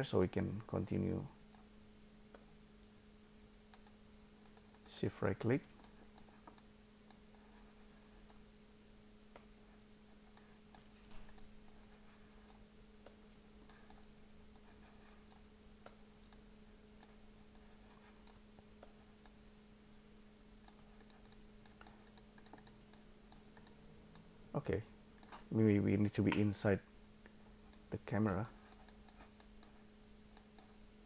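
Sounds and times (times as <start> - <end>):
low steady hum: 0.0 - 31.0
computer mouse and keyboard clicks: 3.7 - 7.6, 10.3 - 11.8, 20.6 - 23.8, 27.7 - 30.8.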